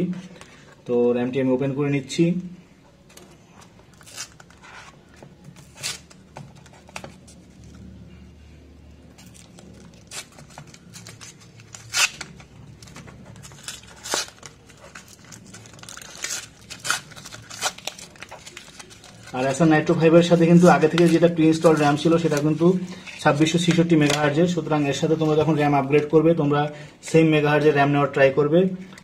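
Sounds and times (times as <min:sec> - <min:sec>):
packaging ripping: 0:03.9 - 0:04.9, 0:05.5 - 0:07.6, 0:09.1 - 0:19.6
packaging crinkling: 0:09.1 - 0:26.0.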